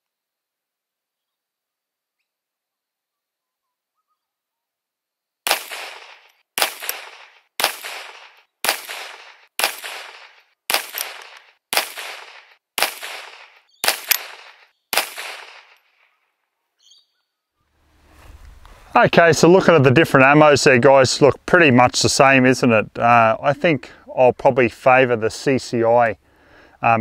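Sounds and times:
pistol shots: 5.5 - 16.0.

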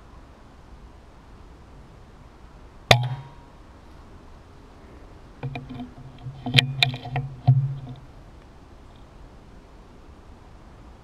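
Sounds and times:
handling clicks and knocks: 5.4 - 8.1.

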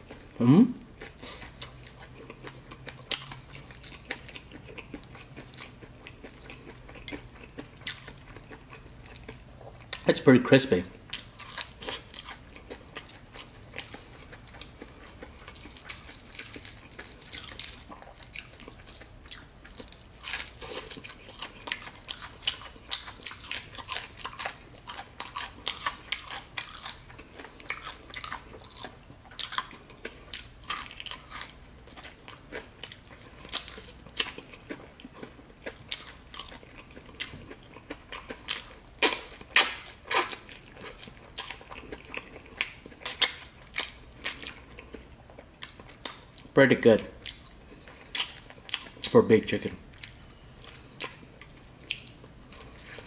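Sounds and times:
chewing crispy chicken: 0.0 - 53.0.

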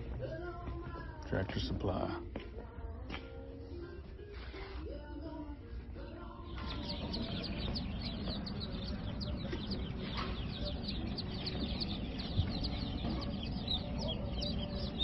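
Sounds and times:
chicks peeping: 6.0 - 15.0.

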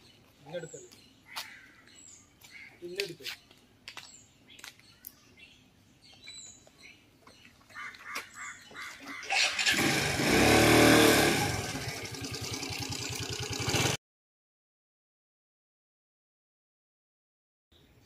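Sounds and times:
motor scooter engine: 9.1 - 14.0.

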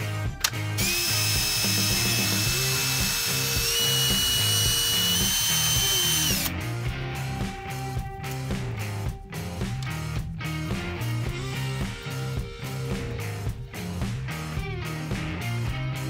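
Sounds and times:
cordless drill whining: 0.8 - 6.5.

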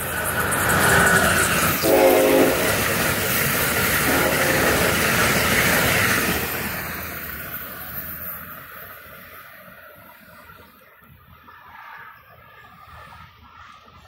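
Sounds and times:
train wheels rushing on rail: 0.0 - 14.0
locomotive horn blast: 1.8 - 2.8, 4.0 - 5.1.

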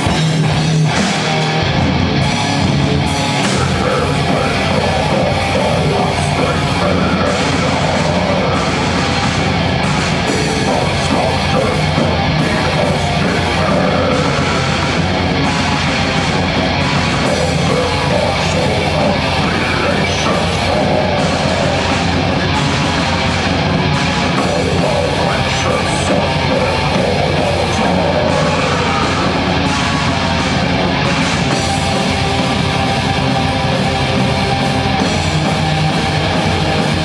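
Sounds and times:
bass guitar: 0.0 - 37.0
drum kit: 0.0 - 37.0
electric guitars: 0.0 - 37.0
heavy metal band playing live: 0.0 - 37.0
person singing into a microphone: 3.4 - 9.2, 10.2 - 15.2, 17.2 - 22.2, 24.3 - 29.6.

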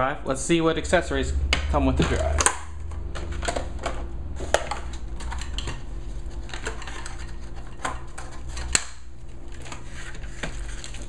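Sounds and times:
low steady hum: 0.0 - 11.0
plastic packaging crinkling: 4.4 - 11.0.

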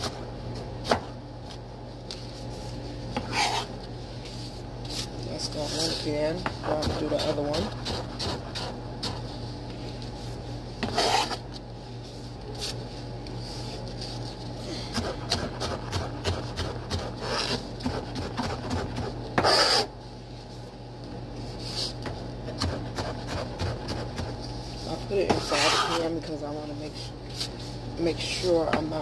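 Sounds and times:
knife scraping board: 3.2 - 3.7, 10.8 - 11.4, 14.9 - 19.9, 25.2 - 26.1.

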